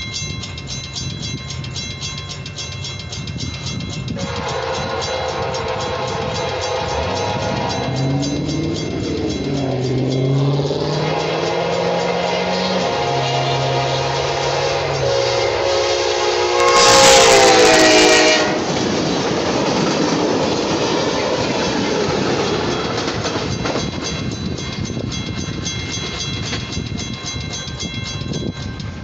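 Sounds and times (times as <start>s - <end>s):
crossing warning bell ringing: 0.0s - 29.0s
train cars rumbling and clattering: 0.0s - 29.0s
train horn: 4.2s - 18.8s.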